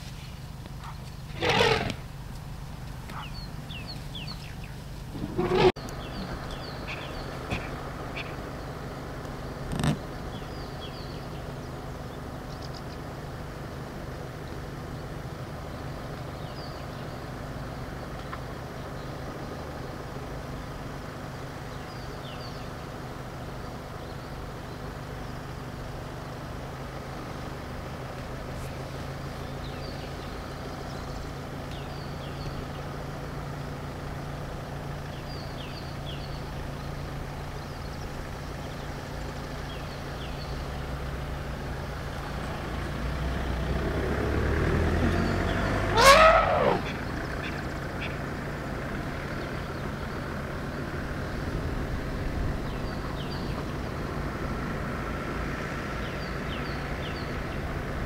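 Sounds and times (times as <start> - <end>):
low engine hum: 0.0 - 58.0
bird chirps: 3.1 - 8.7
vehicle passing by: 40.1 - 58.0.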